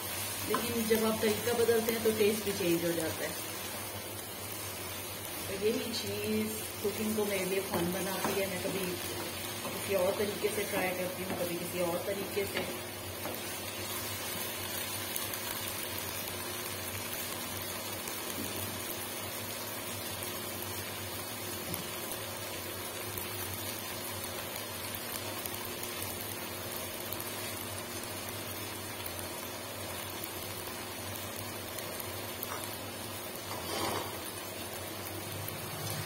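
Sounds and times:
vegetables simmering in a wok: 0.0s - 36.0s.

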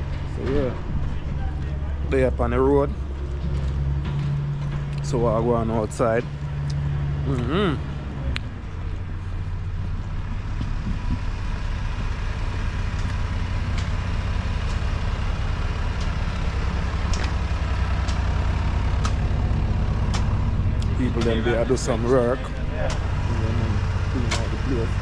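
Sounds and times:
construction machine engine droning: 0.0s - 25.0s.

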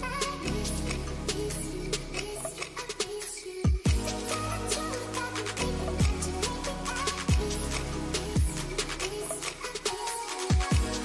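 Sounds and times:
electronic music: 0.0s - 11.0s
hi-hat ticks: 0.0s - 11.0s
deep kick drum: 3.7s - 4.1s, 10.5s - 10.9s.

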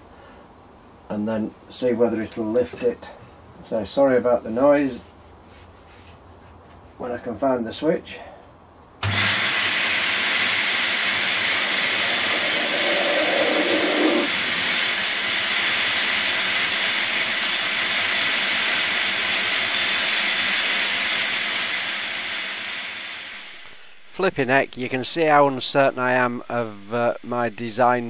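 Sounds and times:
vacuum cleaner blowing air: 9.0s - 25.6s.

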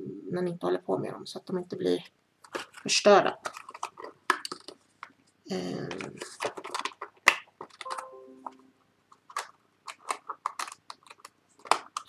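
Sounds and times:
plastic packaging rustling: 2.4s - 5.1s, 5.9s - 8.0s, 9.1s - 12.0s.

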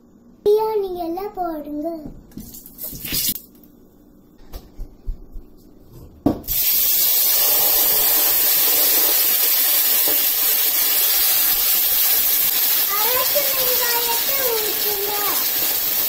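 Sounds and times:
paste sizzling in hot oil: 6.5s - 16.0s.

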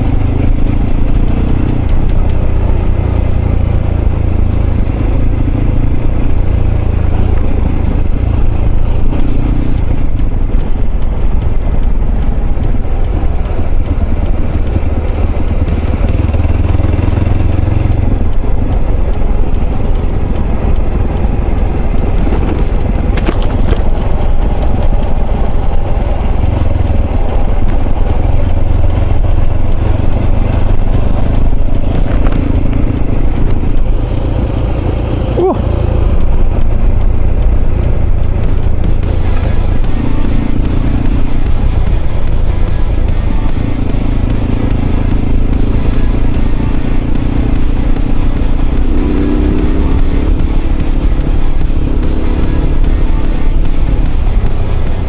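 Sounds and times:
motorcycle engine rumbling: 0.0s - 55.0s.

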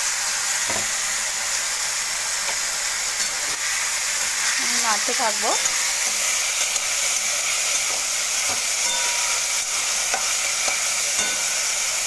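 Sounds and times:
vegetables sizzling in oil: 0.0s - 12.0s
spoon striking metal pan: 5.6s - 5.9s, 8.5s - 11.9s.

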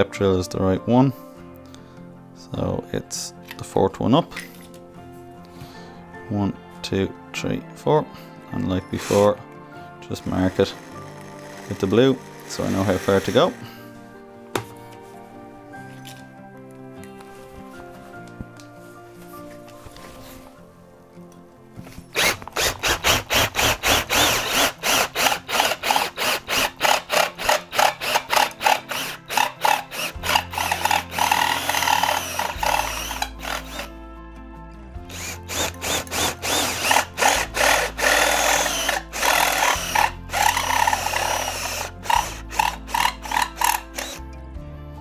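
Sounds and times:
drill cutting through metal: 10.2s - 13.8s, 22.1s - 33.9s, 35.1s - 44.2s.

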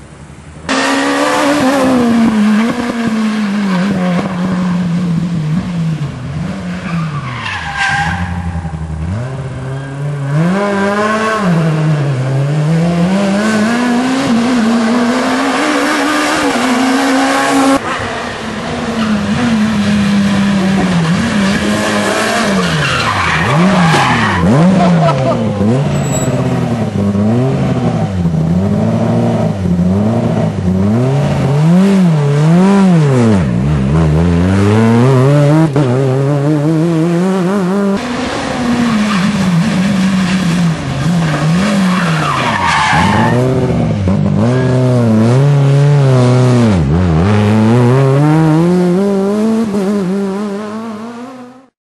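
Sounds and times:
rally car engines revving: 0.6s - 51.7s
tyre squeal: 22.3s - 26.5s.

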